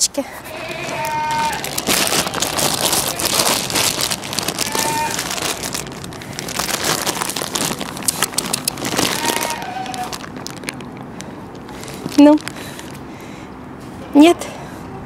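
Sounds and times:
goat bleat: 0:00.4 - 0:03.4, 0:04.5 - 0:05.6, 0:09.0 - 0:10.2
handling rustle: 0:00.5 - 0:13.0.

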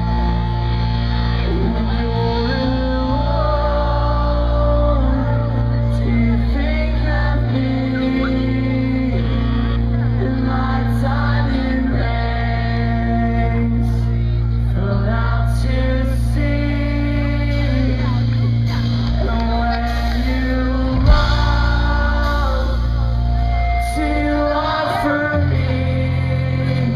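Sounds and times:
bass: 0:00.0 - 0:26.9
drums: 0:00.0 - 0:26.9
electric guitars: 0:00.0 - 0:26.9
person singing: 0:00.0 - 0:26.9.

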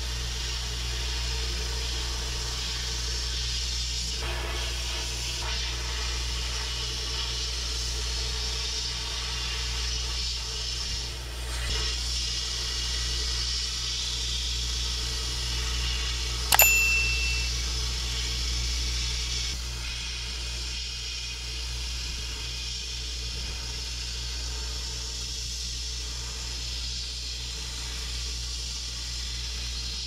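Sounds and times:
metallic ding: 0:16.5 - 0:17.6.

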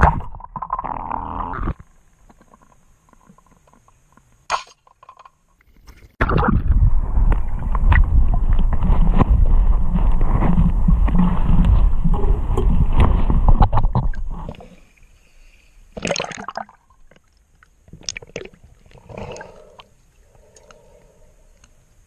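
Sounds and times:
muffled underwater rushing: 0:06.2 - 0:14.8
underwater bubbling and gurgling: 0:06.2 - 0:14.9.

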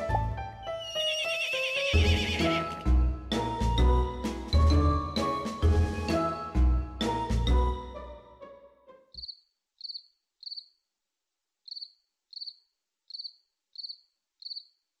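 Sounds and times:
music: 0:00.0 - 0:09.2
cricket chirping: 0:09.2 - 0:10.8, 0:11.7 - 0:14.8.

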